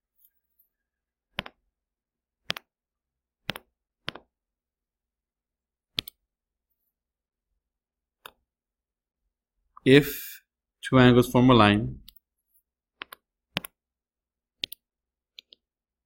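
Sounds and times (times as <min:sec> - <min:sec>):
sharp mouse clicks: 0:06.0 - 0:06.2, 0:14.6 - 0:14.8.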